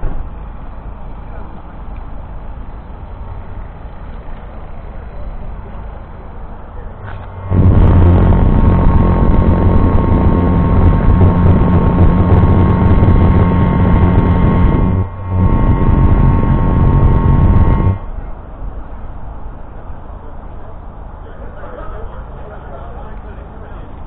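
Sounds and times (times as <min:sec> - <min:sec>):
tractor diesel engine revving: 0:07.0 - 0:18.2.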